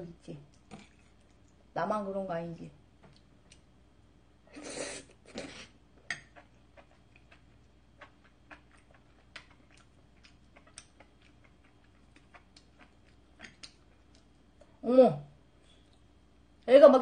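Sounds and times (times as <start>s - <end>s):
quiet chewing: 0.5s - 1.7s, 3.0s - 3.8s, 4.6s - 14.8s.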